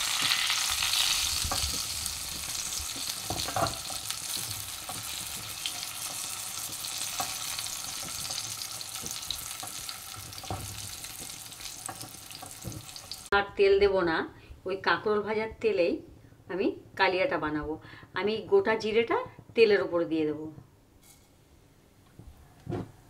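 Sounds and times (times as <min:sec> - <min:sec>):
hot oil sizzling: 0:00.0 - 0:13.4
spatula knocking on pan: 0:01.4 - 0:13.2.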